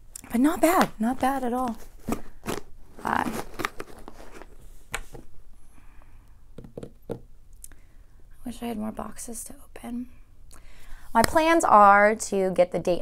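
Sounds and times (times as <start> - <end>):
tissue paper and plastic rustling: 1.1 - 5.3.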